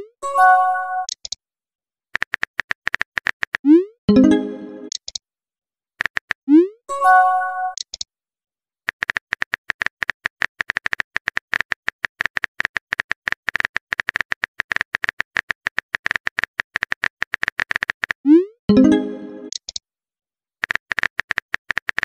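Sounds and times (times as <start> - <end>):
message alert chime: 4.1 - 4.9, 6.9 - 7.8, 18.7 - 19.5.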